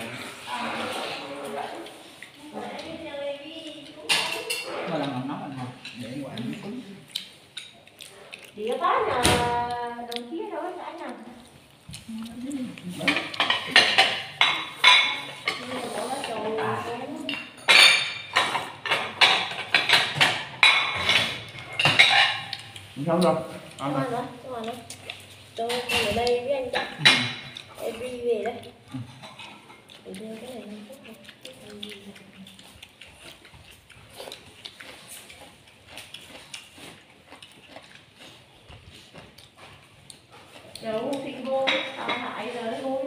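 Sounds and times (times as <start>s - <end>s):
noisy slurping from a bowl: 0.0s - 2.8s, 12.0s - 17.0s, 18.4s - 23.1s
eating noises: 0.0s - 43.0s
chopsticks clicking against bowls: 5.8s - 8.8s.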